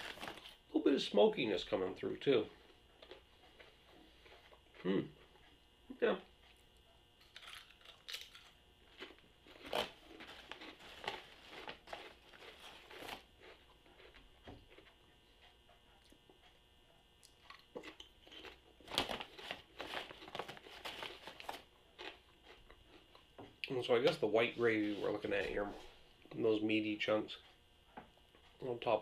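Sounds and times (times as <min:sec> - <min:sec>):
person crunching potato chips: 0:07.2 - 0:14.9, 0:17.3 - 0:23.2.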